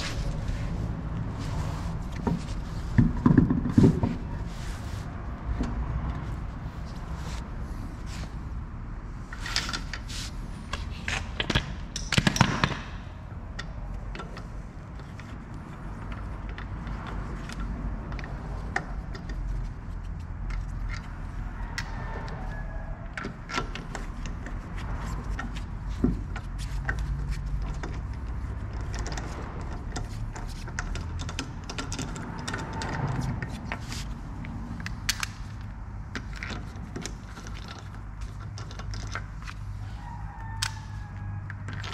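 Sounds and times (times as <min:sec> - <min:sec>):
low workshop hum: 0:00.0 - 0:41.9
metal bolts clicking and clinking: 0:09.2 - 0:10.1, 0:10.7 - 0:39.8.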